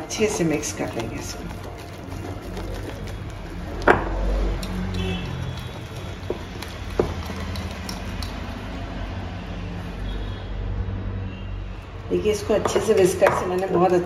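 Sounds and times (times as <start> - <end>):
whisk beating batter: 0.0 - 8.8.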